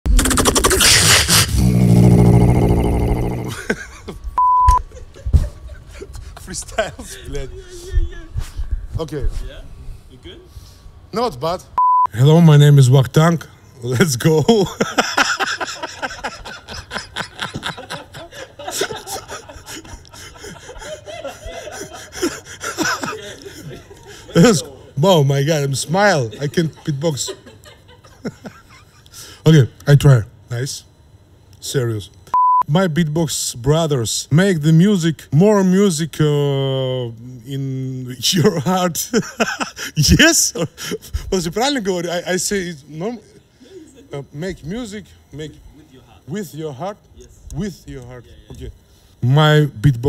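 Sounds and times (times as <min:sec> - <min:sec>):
beatboxer buzzing into microphone: 0:00.1 - 0:03.5
mouth clicks: 0:00.1 - 0:03.5
man snickering and gasping: 0:00.1 - 0:04.1, 0:18.2 - 0:24.3
short pure beep: 0:04.4 - 0:04.8, 0:11.8 - 0:12.1, 0:32.3 - 0:32.7.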